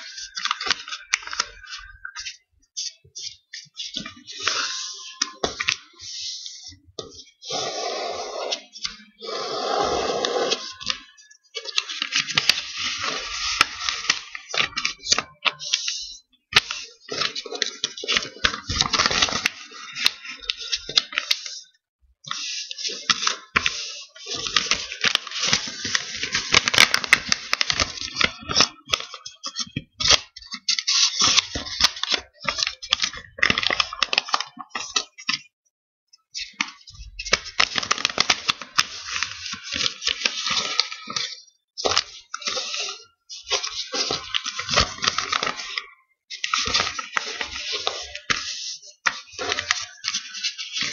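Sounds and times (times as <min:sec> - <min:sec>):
paper crackling and rustling: 0:00.0 - 0:07.6, 0:08.4 - 0:21.6, 0:22.2 - 0:35.5, 0:36.4 - 0:50.9.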